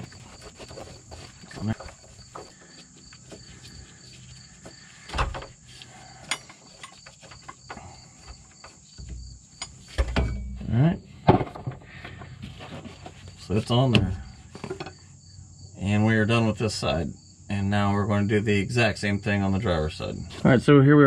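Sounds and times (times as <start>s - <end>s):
metal knocks: 8.6s - 11.8s.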